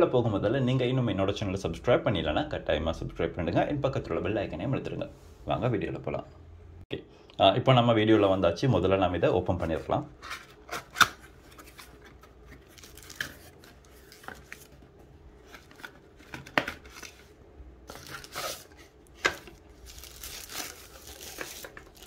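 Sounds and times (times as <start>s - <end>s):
wrapping rustling and crinkling: 9.6s - 22.0s.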